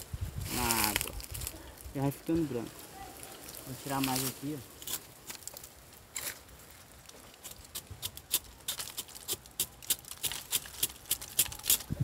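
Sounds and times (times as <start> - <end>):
knife scraping tree bark: 4.8 - 5.5, 7.3 - 12.0.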